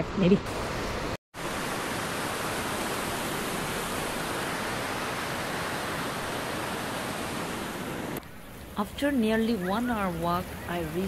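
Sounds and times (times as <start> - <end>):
river rushing over rocks: 1.4 - 8.2.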